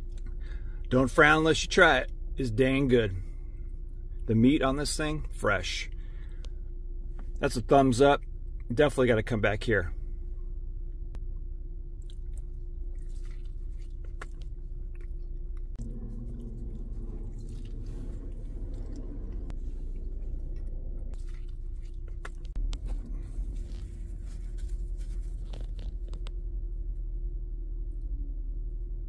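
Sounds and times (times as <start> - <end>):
low steady hum: 0.0 - 29.0
person chewing pizza: 11.9 - 26.3.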